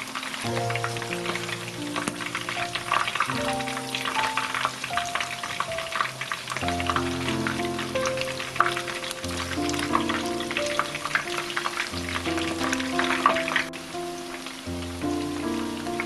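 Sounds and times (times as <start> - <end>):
food deep-frying in hot oil: 0.0 - 16.0
soft background music: 0.0 - 16.0.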